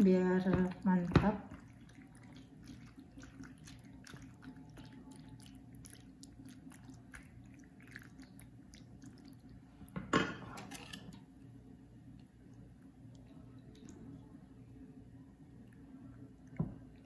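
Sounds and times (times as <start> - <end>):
wet squishing of pasta: 0.0 - 10.0, 12.0 - 14.8
low steady hum: 0.0 - 17.0.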